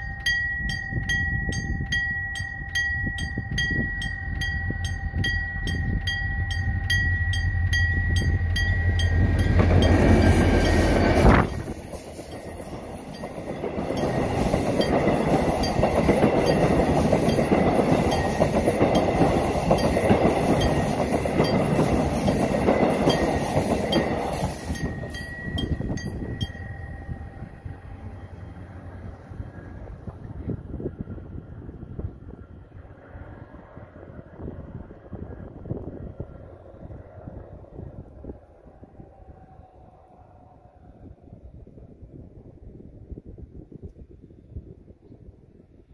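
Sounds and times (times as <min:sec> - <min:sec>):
level-crossing alarm dinging: 0:00.0 - 0:28.6
train wheels on rails: 0:00.0 - 0:38.4
diesel locomotive rumbling: 0:00.0 - 0:43.6.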